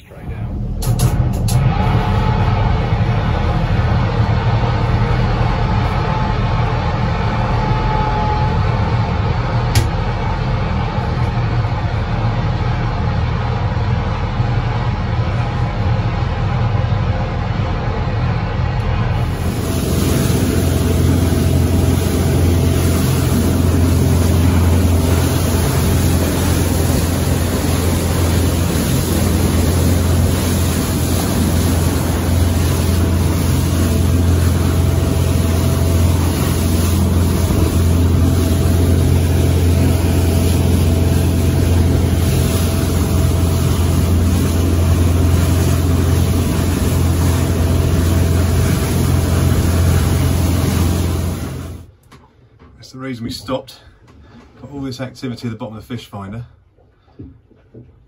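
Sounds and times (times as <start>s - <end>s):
boat engine hum: 0.0s - 58.0s
water rushing past hull: 19.1s - 51.9s.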